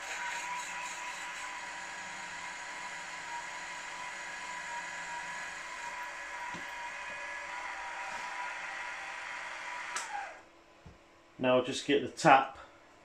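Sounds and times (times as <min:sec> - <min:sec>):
drill bit cutting brass: 0:00.0 - 0:10.2
milling machine spindle running: 0:00.0 - 0:10.4.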